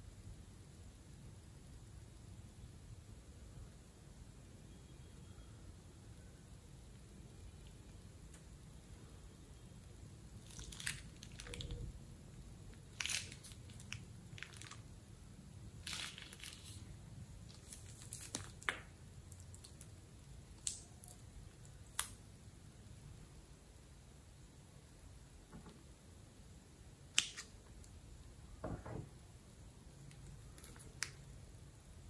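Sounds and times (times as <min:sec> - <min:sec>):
plastic bag crinkling: 0:10.4 - 0:12.0, 0:12.7 - 0:14.9, 0:15.8 - 0:19.9.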